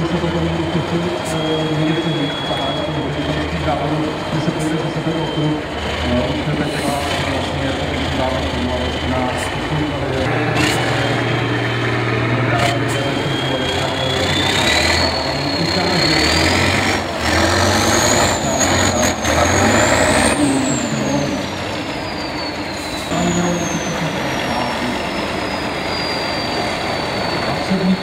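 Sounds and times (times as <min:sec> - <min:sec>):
truck engine under load: 0:00.0 - 0:28.0.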